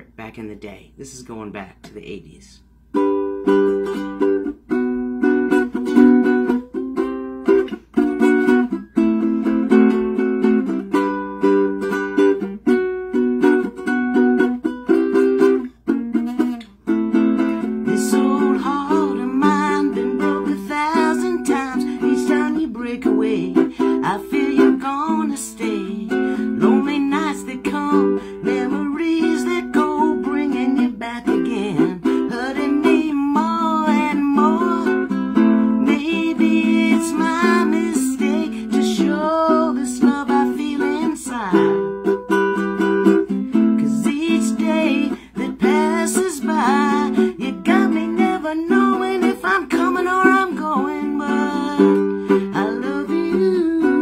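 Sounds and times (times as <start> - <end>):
ukulele strumming: 2.8 - 54.0
woman singing: 17.6 - 42.2, 43.5 - 54.0.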